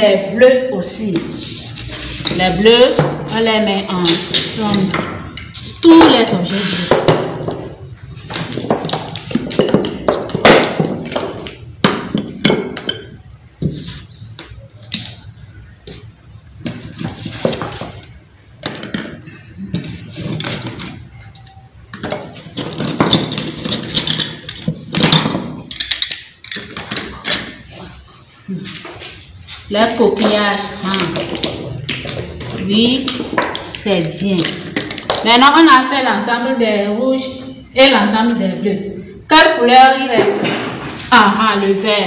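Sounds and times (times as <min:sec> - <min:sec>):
small objects knocking on a table: 0:22.0 - 0:27.6.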